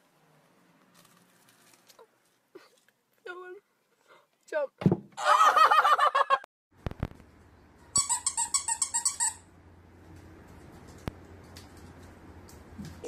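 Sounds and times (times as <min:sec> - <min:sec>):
squeaky toy squeaking: 0:07.9 - 0:09.5.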